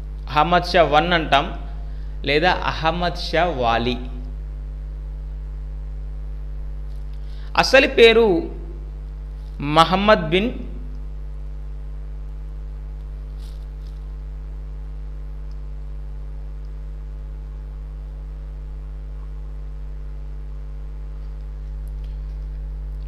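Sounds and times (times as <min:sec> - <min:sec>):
electrical mains hum: 0:00.0 - 0:23.0
faint click: 0:15.4 - 0:15.7.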